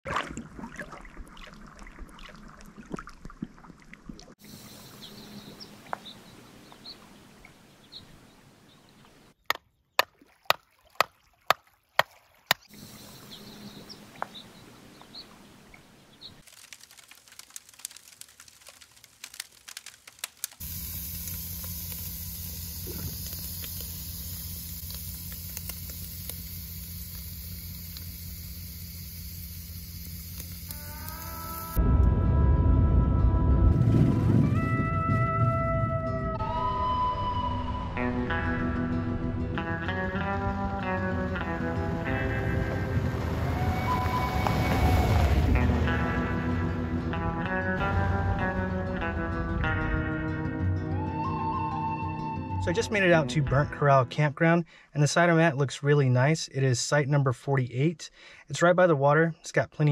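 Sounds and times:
sharp clicks: 0:16.4 - 0:31.8
steady hiss with low hum: 0:20.6 - 0:31.8.

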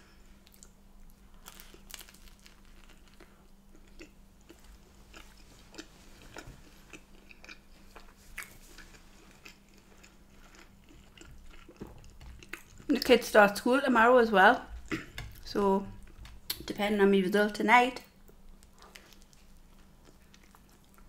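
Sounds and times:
wet chewing mouth sounds: 0:03.2 - 0:12.9, 0:18.3 - 0:21.0.

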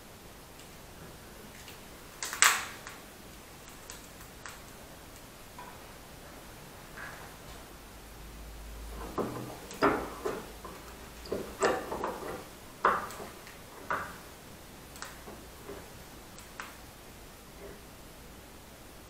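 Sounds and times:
screw clamps clicking and knocking: 0:09.0 - 0:14.2.

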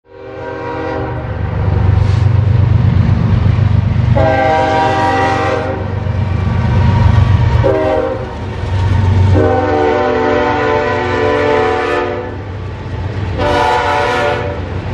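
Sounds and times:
train air horn blasts: 0:00.1 - 0:02.2, 0:04.2 - 0:06.0, 0:07.6 - 0:08.3, 0:09.2 - 0:12.5, 0:13.3 - 0:14.8
diesel locomotive rumble: 0:00.1 - 0:14.9
rolling railcars: 0:00.1 - 0:14.9.

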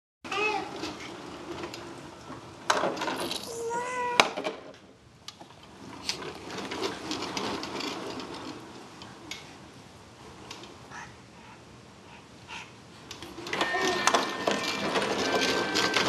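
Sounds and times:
plastic toys clicking and rattling: 0:02.7 - 0:04.7, 0:13.1 - 0:16.0.

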